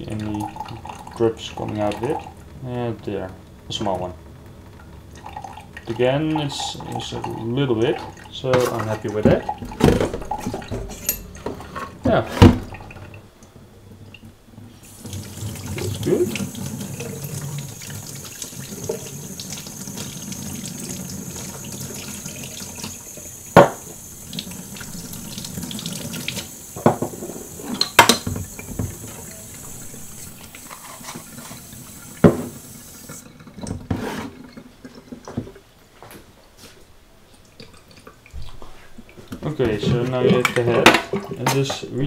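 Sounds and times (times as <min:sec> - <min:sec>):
tap running into steel sink: 0:22.5 - 0:24.0, 0:24.8 - 0:31.6, 0:32.2 - 0:33.2.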